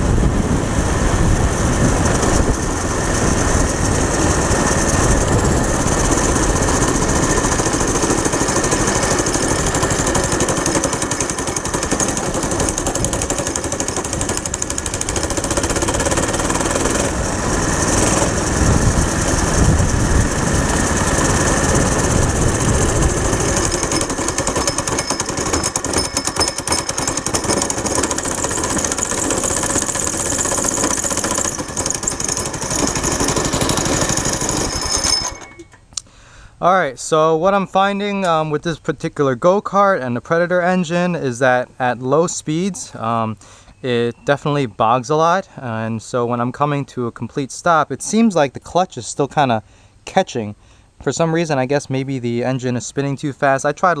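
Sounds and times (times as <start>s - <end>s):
go-kart engine running: 0.0s - 35.8s.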